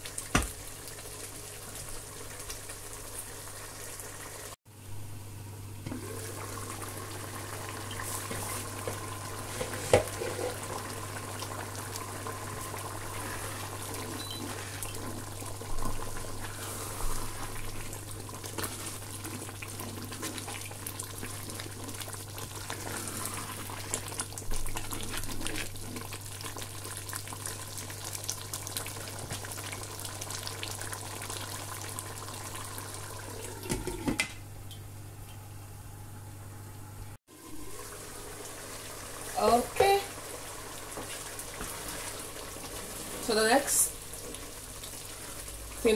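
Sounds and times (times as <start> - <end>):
soup simmering in pot: 0.0 - 4.6, 5.5 - 35.5, 37.2 - 45.9
wooden spoon stirring: 40.9 - 45.9.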